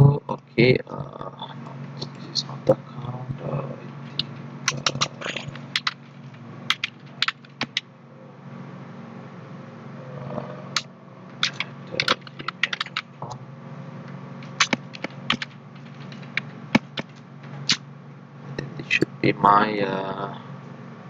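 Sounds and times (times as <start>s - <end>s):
low steady hum: 0.0s - 21.0s
computer keyboard typing: 4.2s - 6.0s, 6.7s - 7.8s, 11.4s - 13.2s, 14.4s - 17.8s.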